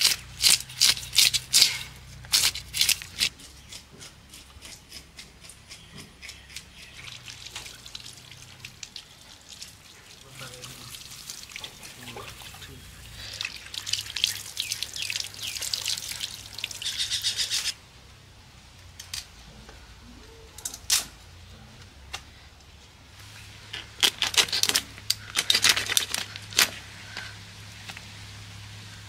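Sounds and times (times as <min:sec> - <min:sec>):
blade scraping fish scales: 0:16.8 - 0:17.8.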